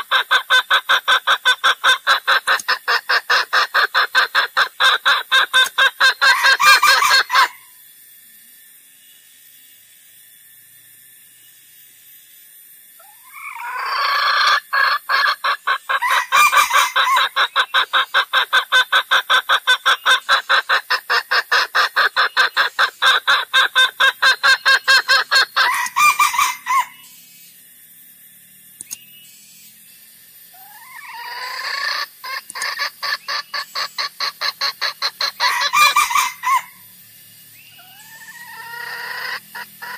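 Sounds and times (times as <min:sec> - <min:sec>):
junglefowl clucking: 0:00.0 - 0:07.7, 0:13.0 - 0:27.1, 0:30.6 - 0:36.8, 0:37.8 - 0:39.9.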